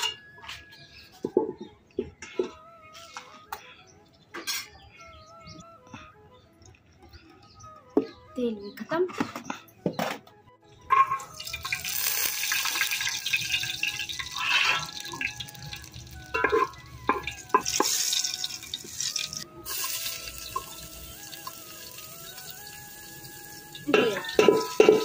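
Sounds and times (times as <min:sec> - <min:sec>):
ladle clinking on pot: 0:10.9 - 0:11.3, 0:16.4 - 0:18.0, 0:23.9 - 0:25.0
liquid splashing and hissing in pot: 0:11.4 - 0:16.8, 0:17.4 - 0:23.9.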